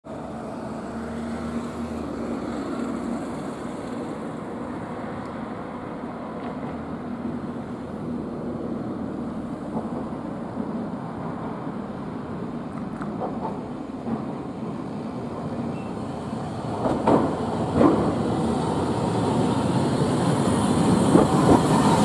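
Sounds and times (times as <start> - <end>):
road traffic noise: 0.0 - 22.0
tram running with low hum: 0.1 - 22.0.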